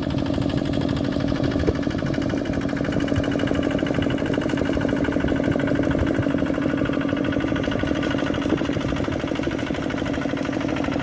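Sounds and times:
diesel engine chugging: 0.0 - 11.0.

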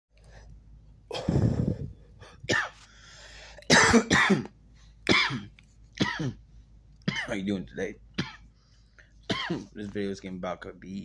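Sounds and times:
man coughing: 2.2 - 2.8, 3.7 - 4.5, 5.1 - 6.4, 7.1 - 7.4, 9.3 - 9.8.

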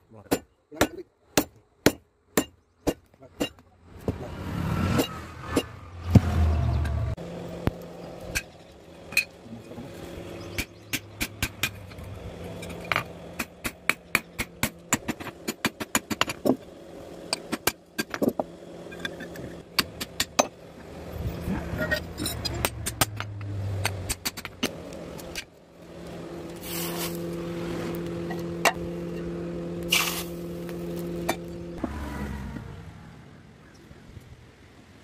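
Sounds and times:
steady low hum: 5.3 - 31.8.

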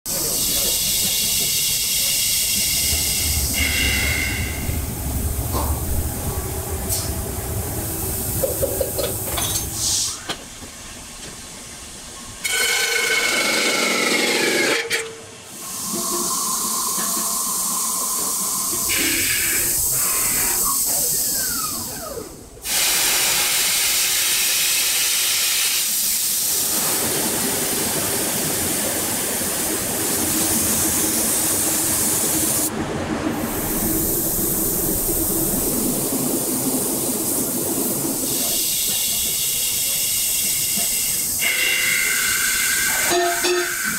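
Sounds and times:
loud hissing: 0.1 - 10.3, 15.7 - 32.7, 33.4 - 43.1
factory machine noise: 0.1 - 43.9
falling machine whine: 2.4 - 9.8.

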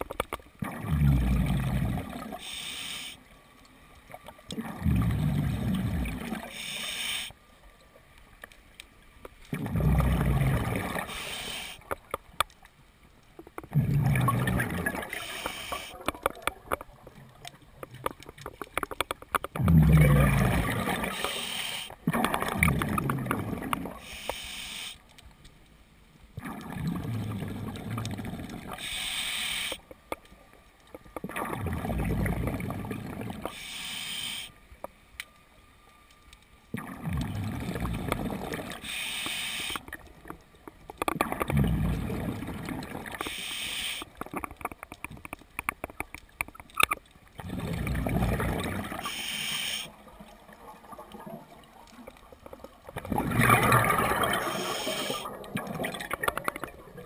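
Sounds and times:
bubbling exhale underwater: 0.6 - 2.4, 4.6 - 6.4, 9.5 - 11.1, 13.7 - 16.0, 19.6 - 21.4, 22.0 - 24.0, 26.4 - 28.9, 31.3 - 33.4, 36.8 - 39.0, 41.2 - 43.2, 47.4 - 49.2, 52.9 - 57.0
hissing regulator inhale: 2.4 - 3.2, 6.4 - 7.4, 11.0 - 11.8, 15.1 - 16.0, 21.1 - 22.0, 24.0 - 25.0, 28.8 - 29.8, 33.5 - 34.6, 38.8 - 39.9, 43.2 - 44.1, 49.0 - 50.0, 54.4 - 55.3.

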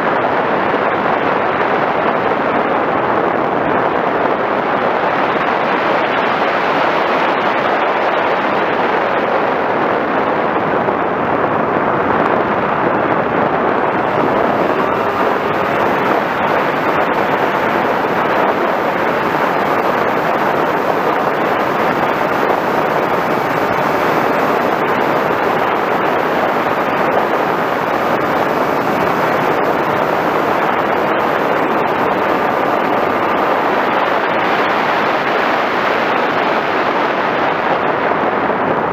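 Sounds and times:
faint whine: 0.0 - 38.9
wind rushing over microphone: 0.0 - 38.9
electric motor and propeller: 12.4 - 35.9.

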